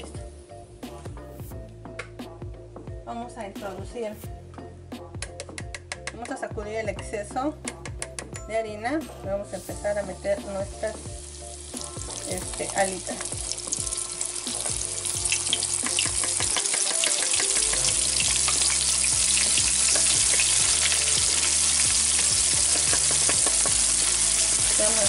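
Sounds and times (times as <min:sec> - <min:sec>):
chicken frying in hot oil: 0:11.1 - 0:25.0.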